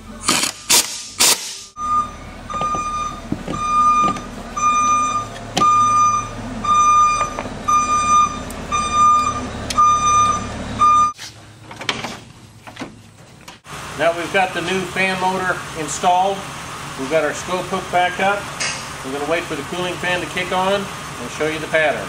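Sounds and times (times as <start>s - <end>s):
pneumatic impact wrench burst: 0.2s - 1.8s
electronic warning beep: 1.7s - 11.2s
low engine hum: 1.7s - 22.0s.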